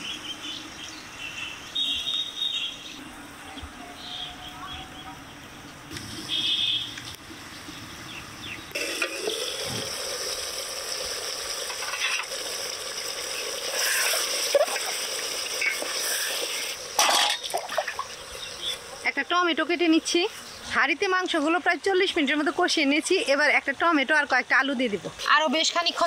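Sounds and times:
curry sizzling and bubbling: 0:05.8 - 0:23.6.

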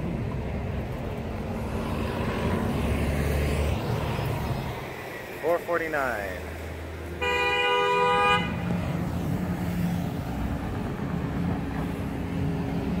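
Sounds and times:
passing road traffic: 0:00.0 - 0:13.0
car horn toot: 0:07.2 - 0:08.7.

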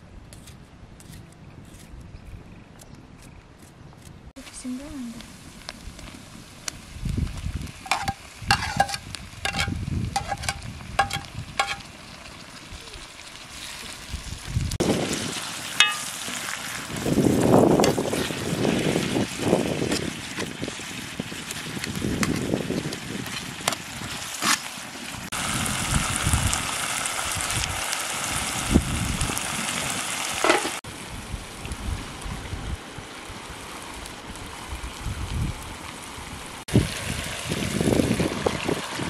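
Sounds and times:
vegetables sizzling in a pot: 0:04.5 - 0:32.5
metal ladle clinking against pot: 0:15.8 - 0:16.1.

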